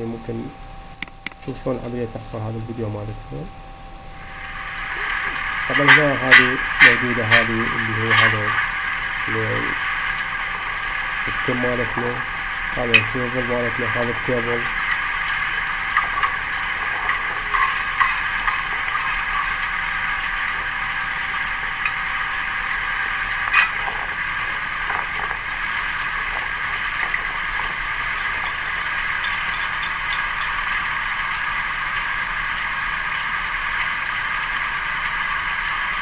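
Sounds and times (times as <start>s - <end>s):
small metallic clicks: 1.0s - 1.4s
drilling rig running: 1.0s - 36.0s.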